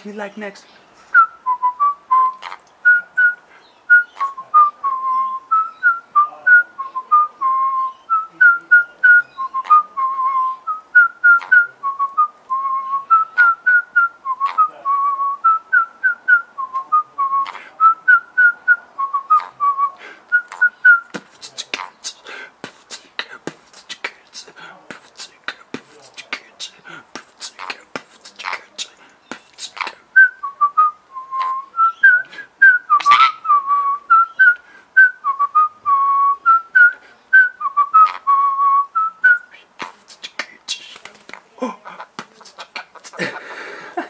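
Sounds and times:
person whistling a tune: 1.2 - 21.1, 30.2 - 39.5
mouth clicks: 20.3 - 30.4, 31.2 - 33.6, 39.2 - 43.4
beatboxed clicks and puffs: 21.0 - 30.0, 39.4 - 43.4.

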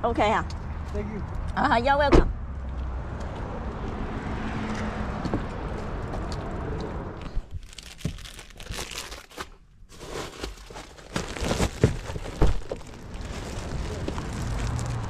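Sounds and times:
plastic wrap crinkling: 7.6 - 15.0.

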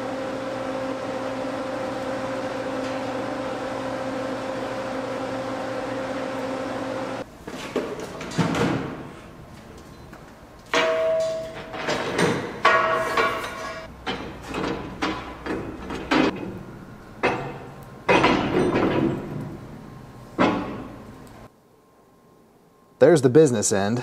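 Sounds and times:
metal clanks and knocks: 10.7 - 19.7, 20.4 - 21.0
metallic ring: 10.8 - 12.0.

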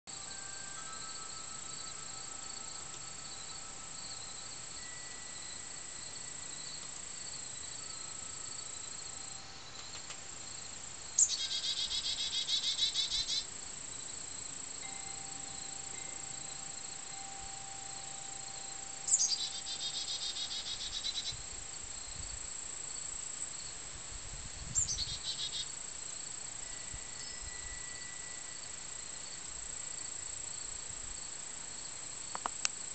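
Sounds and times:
wind chime tones: 0.1 - 9.8, 14.8 - 21.8, 26.5 - 29.4
buzzy insect calls: 0.1 - 32.9
crickets and insects chorus: 0.1 - 32.9.

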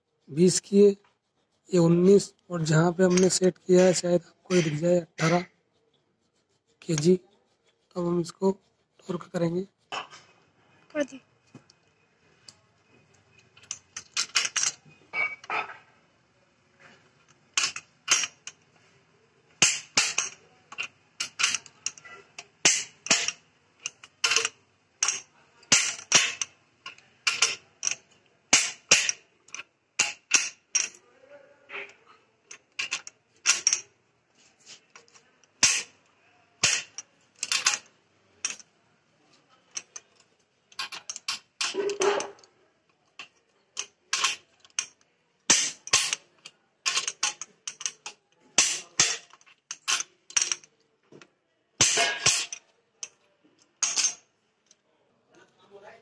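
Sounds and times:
torque wrench clicking: 22.6 - 26.5.

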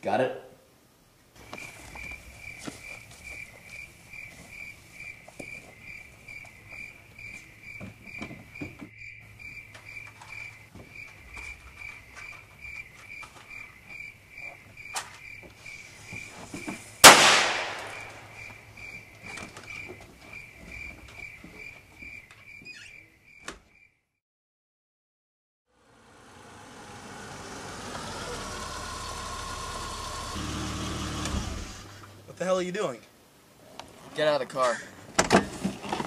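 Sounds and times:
crickets chirping: 1.4 - 24.0.

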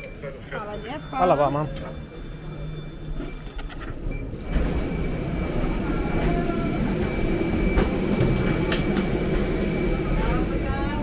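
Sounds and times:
parked airliner rumble: 1.8 - 11.0.

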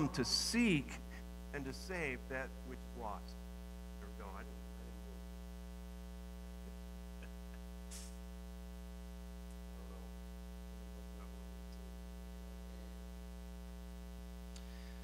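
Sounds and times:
electrical mains hum: 0.0 - 15.0
burst of hiss: 7.9 - 8.2.

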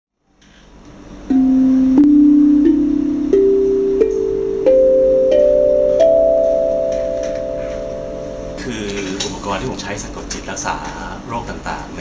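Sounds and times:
steel tongue drum rising scale: 1.2 - 9.2.

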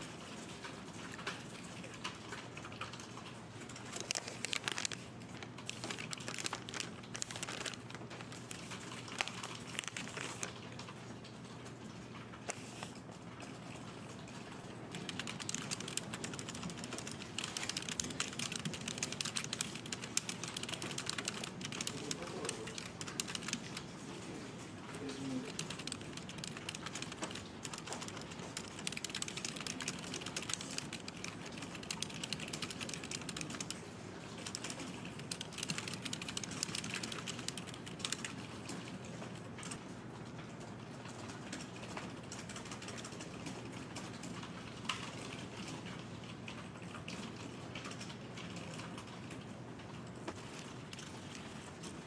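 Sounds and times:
fast typing on keyboard: 3.7 - 10.7, 14.8 - 24.0, 24.9 - 39.0, 41.6 - 43.7, 50.3 - 52.0.

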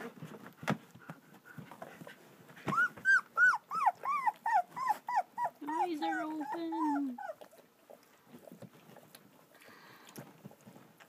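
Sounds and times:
puppies stirring: 0.0 - 11.0
puppy whining: 1.4 - 9.4.

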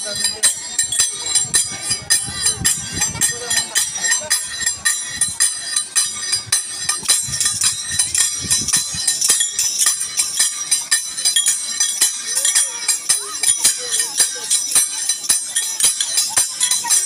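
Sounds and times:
hand cymbals clashing: 0.0 - 17.0.

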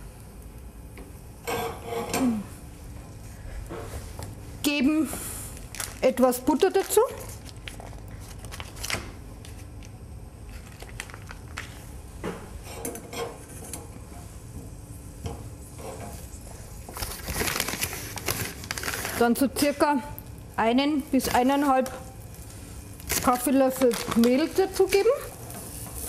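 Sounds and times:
foil crinkling: 5.6 - 11.8, 16.9 - 19.8, 23.0 - 25.3.

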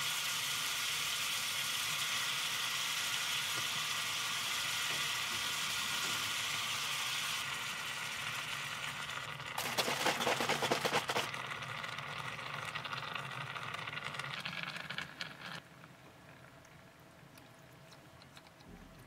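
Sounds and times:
milk pouring from carton: 9.4 - 11.7.

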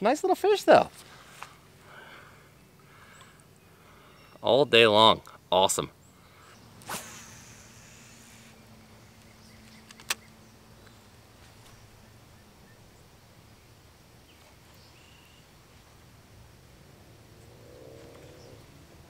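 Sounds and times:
thin insect-like buzz: 6.2 - 11.9
fishing rod swishing: 6.8 - 8.6
sharp click: 9.6 - 10.3.

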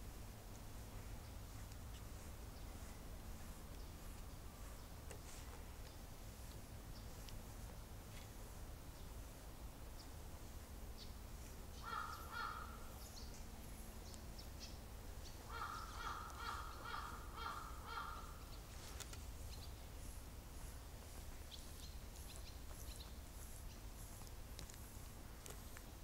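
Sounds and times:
bird calling harsh notes: 11.7 - 13.2, 15.4 - 18.6.

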